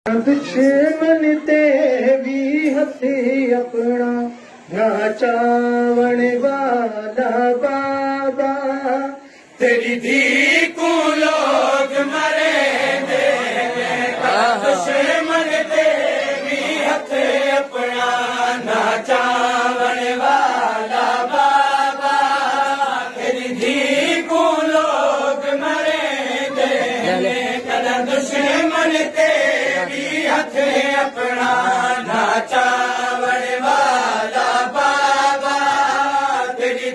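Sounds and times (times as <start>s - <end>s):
man singing a lament: 0.1s - 11.1s, 26.6s - 33.1s
men chanting in unison: 4.7s - 36.9s.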